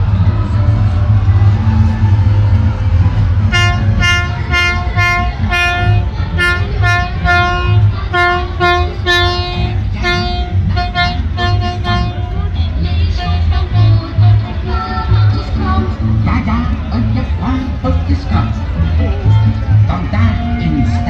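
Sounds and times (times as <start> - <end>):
steady low rumble: 0.0 - 21.0
horn tooting: 3.4 - 14.2.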